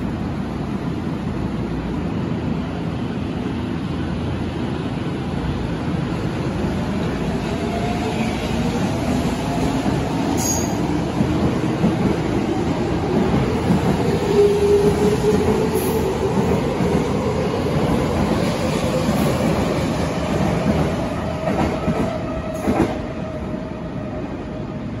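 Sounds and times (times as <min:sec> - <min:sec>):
train wheels rumbling and clacking: 0:06.8 - 0:23.5.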